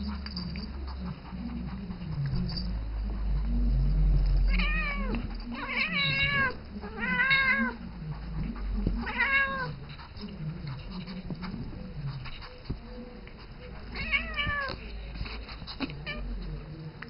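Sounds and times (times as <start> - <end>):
cat meowing: 4.5 - 7.8, 9.0 - 9.8, 14.0 - 14.8.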